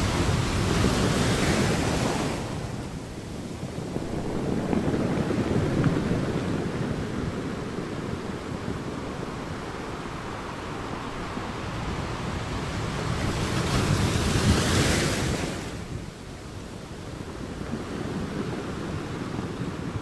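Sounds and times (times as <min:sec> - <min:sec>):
sea waves breaking on rocks: 0:00.0 - 0:06.7.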